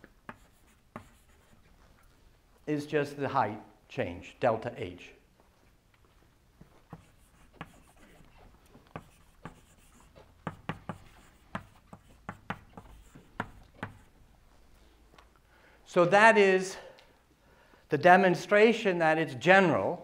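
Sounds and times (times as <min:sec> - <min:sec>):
chalk writing on blackboard: 0:00.1 - 0:01.7, 0:06.9 - 0:14.2.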